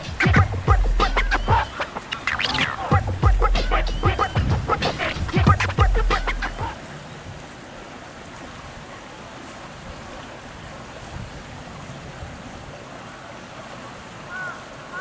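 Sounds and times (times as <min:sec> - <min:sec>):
short arched call: 0:00.0 - 0:06.8
outdoor background hiss: 0:00.0 - 0:15.0.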